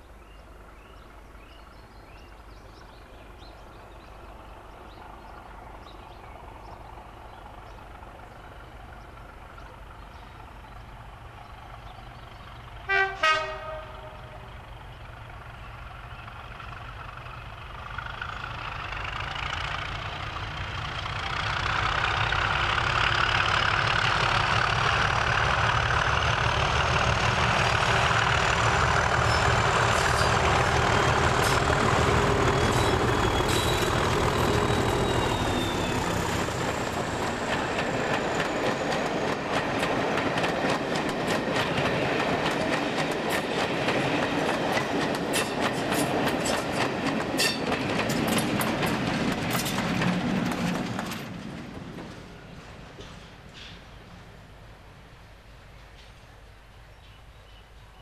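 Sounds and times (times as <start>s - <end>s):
diesel locomotives passing: 0.0s - 58.0s
train wheels clattering over rail joints: 17.9s - 54.1s.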